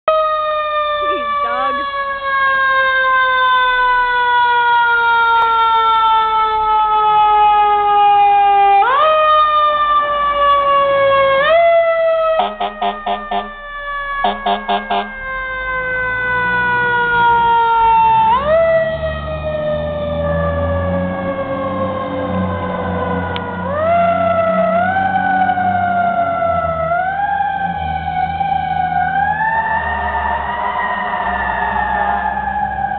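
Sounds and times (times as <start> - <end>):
mechanical siren wailing: 0.1 - 32.9
truck engine pulling away: 0.1 - 32.9
rapid horn blasts: 12.3 - 13.6, 14.2 - 15.2.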